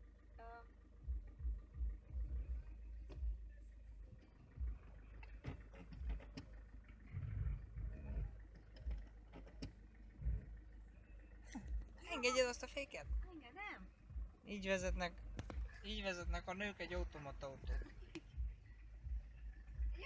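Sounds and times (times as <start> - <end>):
car engine idling: 0.0 - 20.0
low thumps: 7.1 - 10.6, 14.1 - 20.0.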